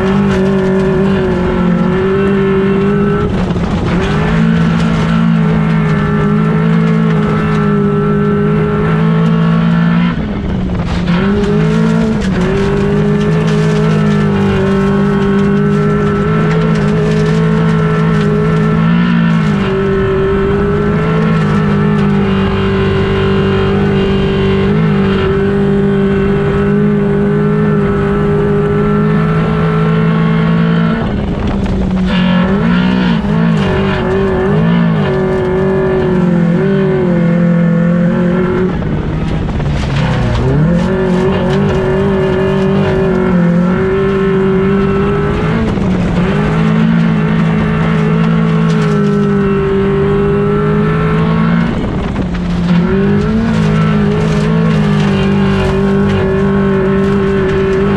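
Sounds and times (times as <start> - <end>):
race car engine running hard: 0.0 - 57.9.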